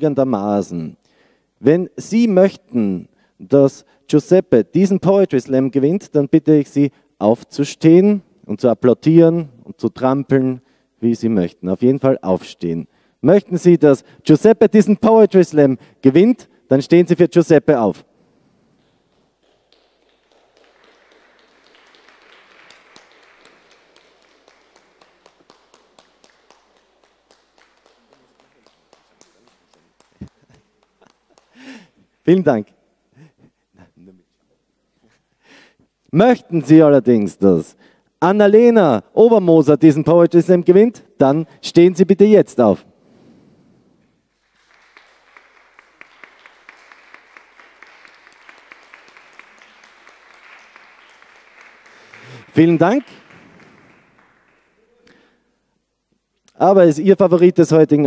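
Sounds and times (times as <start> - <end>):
audience clapping: 18.8 - 32.1, 44.3 - 55.4.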